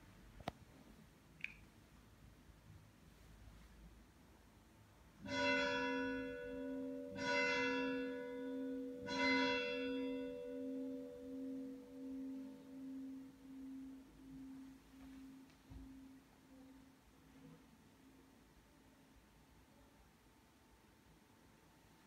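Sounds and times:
church bell ringing: 0:05.2 - 0:16.2.

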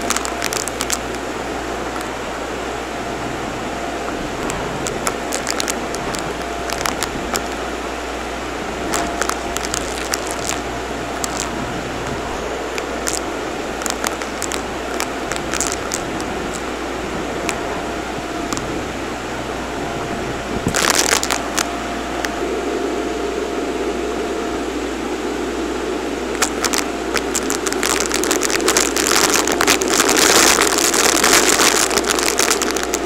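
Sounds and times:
debris clicking in vacuum: 0:00.0 - 0:02.2, 0:04.1 - 0:07.7, 0:08.8 - 0:18.8, 0:20.6 - 0:22.4, 0:26.3 - 0:33.0.

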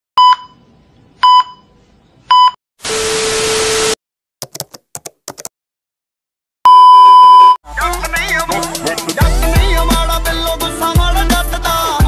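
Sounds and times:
short high beeps: 0:06.7 - 0:07.6.

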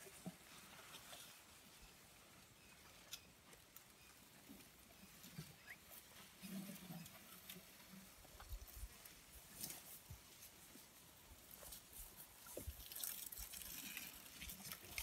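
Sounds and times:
faint clicks and rustles: 0:00.0 - 0:15.0.

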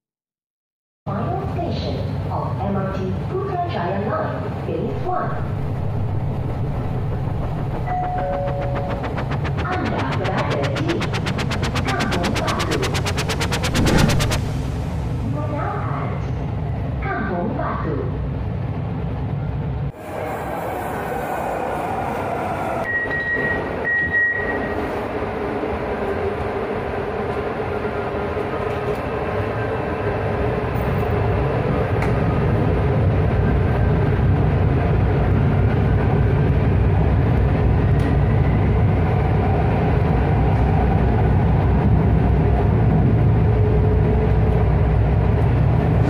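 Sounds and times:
train rail rumble: 0:04.5 - 0:23.9.

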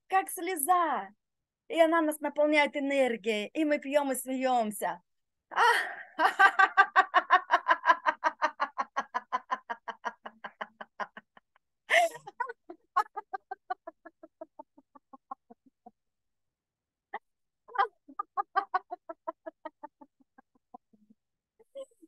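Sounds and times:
woman laughing: 0:05.6 - 0:15.9, 0:17.7 - 0:20.9.

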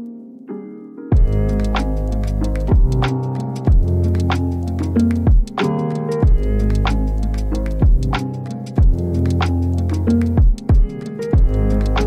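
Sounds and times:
background music with beat: 0:01.1 - 0:12.0
heavy drum hit: 0:01.2 - 0:01.4, 0:02.7 - 0:03.1, 0:08.8 - 0:09.0, 0:10.4 - 0:11.6
light ticking percussion: 0:01.2 - 0:12.0.

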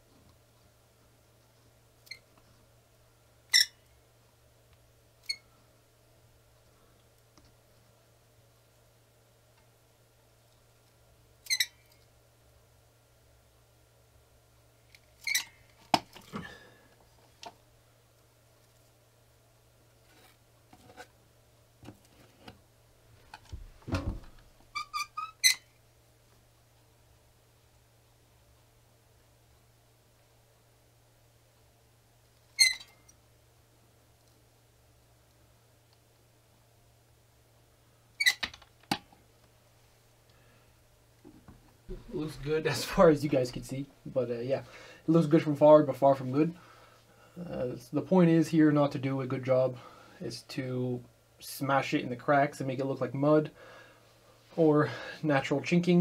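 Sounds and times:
dull thump: 0:23.5 - 0:24.4.

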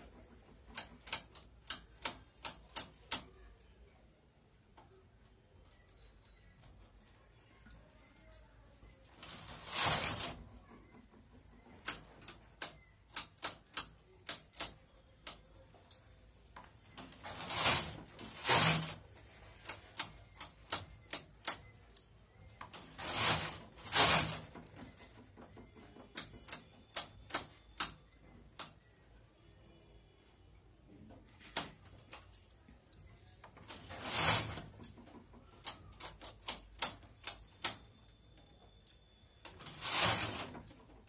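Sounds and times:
knitting needles clicking: 0:00.0 - 0:04.0, 0:10.6 - 0:23.0, 0:23.6 - 0:29.0, 0:34.6 - 0:38.2
knitting carriage clattering: 0:05.8 - 0:28.8.

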